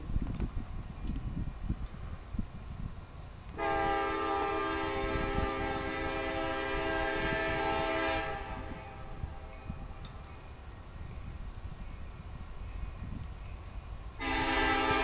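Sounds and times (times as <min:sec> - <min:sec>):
locomotive air horn blast: 0:03.6 - 0:09.2, 0:14.2 - 0:15.0.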